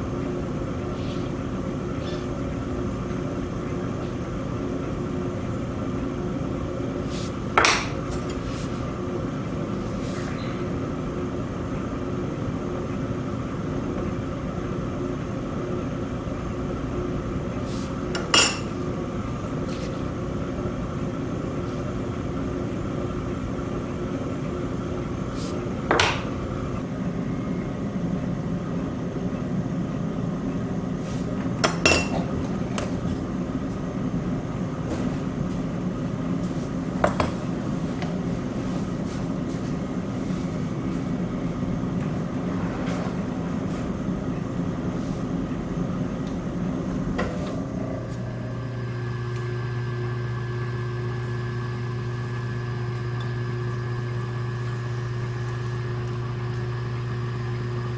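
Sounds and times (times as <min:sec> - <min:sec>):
potter's wheel motor hum: 0:00.0 - 0:57.9.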